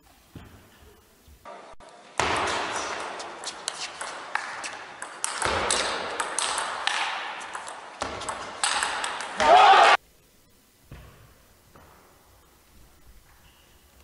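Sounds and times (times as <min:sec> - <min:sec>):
background noise: 0:00.0 - 0:14.0
table tennis ball hits: 0:02.2 - 0:10.0.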